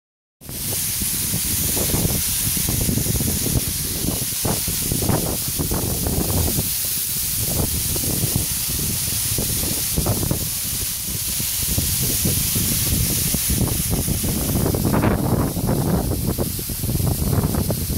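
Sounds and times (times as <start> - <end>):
low rumbling surges: 0.5 - 17.9
waterfall rushing onto rocks: 0.5 - 17.9.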